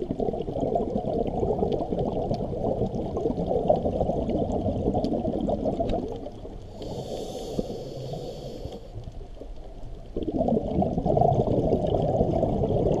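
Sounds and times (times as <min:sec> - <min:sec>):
exhaled bubbles rushing: 0:00.0 - 0:06.6, 0:10.0 - 0:13.0
regulator inhalation hiss: 0:06.7 - 0:09.0.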